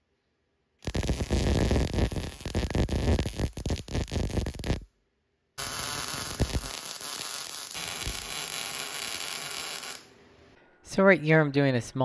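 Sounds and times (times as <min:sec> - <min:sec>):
welding arc crackling and hissing: 0:00.8 - 0:04.8, 0:05.6 - 0:10.1.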